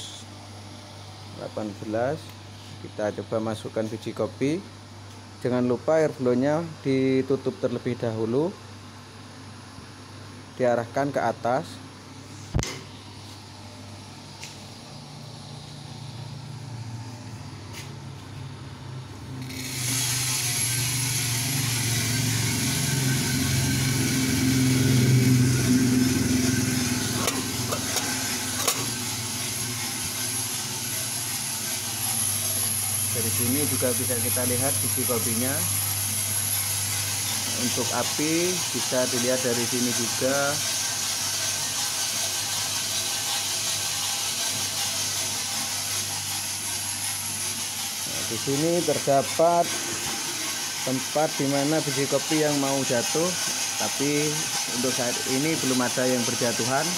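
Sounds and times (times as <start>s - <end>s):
roaster low hum: 0.0s - 56.9s
coffee beans pouring rattle: 19.4s - 56.9s
gas burner hissing: 19.4s - 56.9s.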